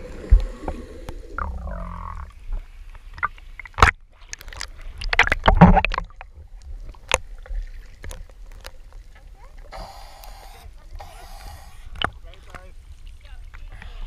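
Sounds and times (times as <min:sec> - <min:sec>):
bubbles: 0:00.0 - 0:02.4
water sloshing and splashing: 0:00.0 - 0:09.9.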